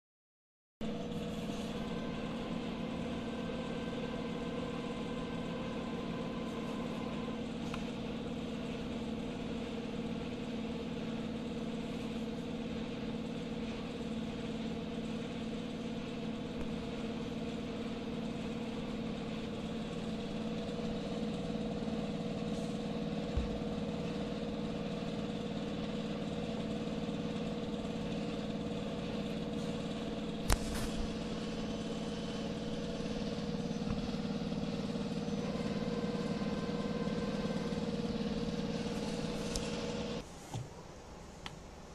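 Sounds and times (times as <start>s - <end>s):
sewing machines humming: 0.9s - 40.2s
sharp click: 30.4s - 31.1s.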